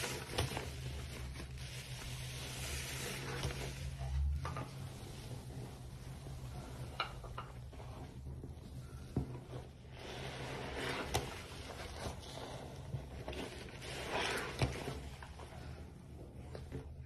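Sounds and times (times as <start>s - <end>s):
foam squelching under sponge: 9.8s - 15.7s.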